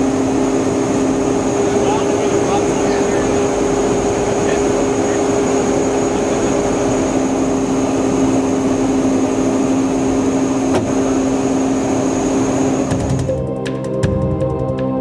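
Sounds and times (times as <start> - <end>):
faint high whine: 0.0 - 13.2
constant low hum: 0.0 - 13.5
jet engines and rushing air: 0.0 - 13.5.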